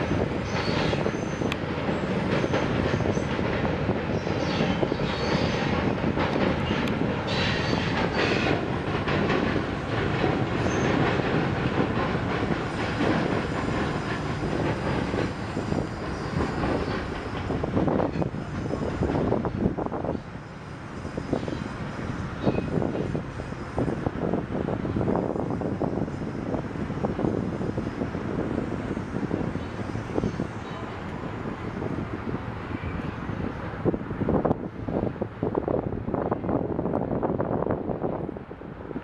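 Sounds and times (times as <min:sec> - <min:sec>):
freight train rumbling: 0:00.0 - 0:39.0
wheels clattering over rail joints: 0:00.1 - 0:20.0.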